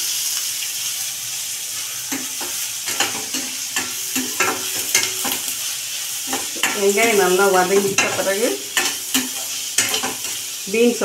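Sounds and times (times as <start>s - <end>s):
onions sizzling in oil: 0.0s - 11.0s
spatula scraping pan: 1.8s - 10.6s.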